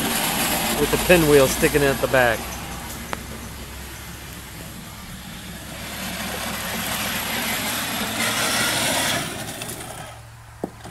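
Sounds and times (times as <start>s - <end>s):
wheels hissing on wet pavement: 0.0s - 10.5s.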